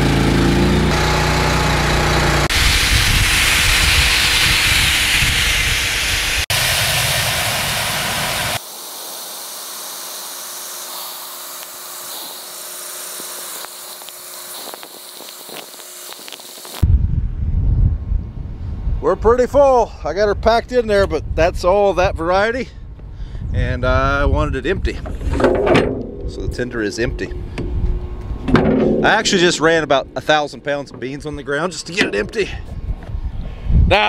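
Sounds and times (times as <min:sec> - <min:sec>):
engine running: 0:00.0 - 0:08.6, 0:25.0 - 0:32.4
seed pouring hiss: 0:02.5 - 0:16.8.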